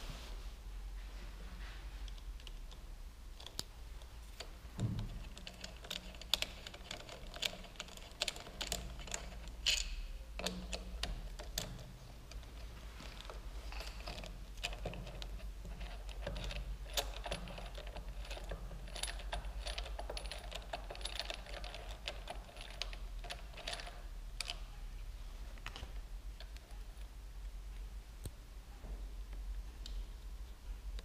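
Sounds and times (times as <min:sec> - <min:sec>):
low steady hum: 0:00.0 - 0:31.0
screwdriver clicking and scraping: 0:04.4 - 0:24.6.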